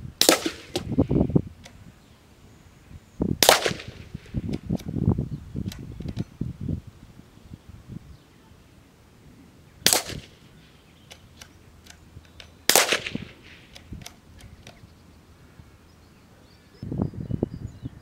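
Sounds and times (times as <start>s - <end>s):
rifle shots: 0.2s - 1.0s, 3.4s - 4.4s, 9.8s - 10.4s, 12.6s - 13.9s.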